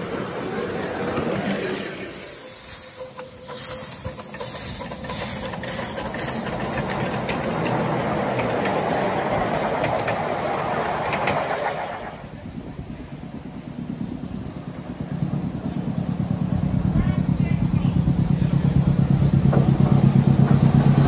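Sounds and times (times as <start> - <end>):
wheels rumbling on track: 0.0 - 21.0
steam locomotive chuffing: 0.8 - 21.0.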